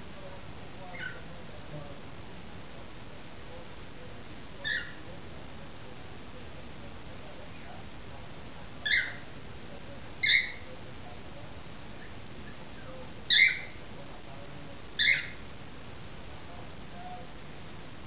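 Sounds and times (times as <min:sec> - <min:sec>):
cockatiel chirps: 0:00.9 - 0:01.2, 0:04.6 - 0:05.0, 0:08.8 - 0:09.3, 0:10.2 - 0:10.7, 0:13.3 - 0:13.8, 0:15.0 - 0:15.4.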